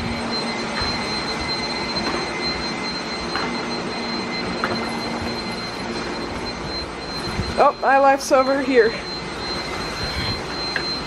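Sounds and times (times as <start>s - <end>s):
high constant whine: 0.0s - 11.0s.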